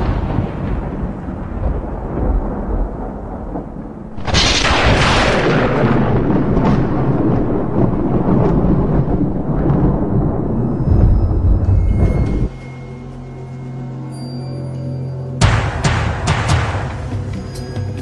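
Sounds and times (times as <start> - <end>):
loud thunderclap: 0.0 - 12.5
thunder rumble: 0.0 - 12.6.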